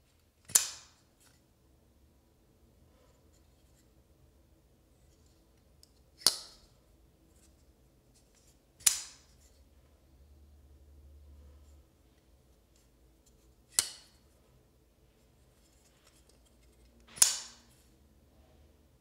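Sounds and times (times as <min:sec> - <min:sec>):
folding knife blade snapping: 0:00.4 - 0:01.0, 0:06.2 - 0:06.6, 0:08.8 - 0:09.2, 0:13.7 - 0:14.2, 0:17.1 - 0:17.6.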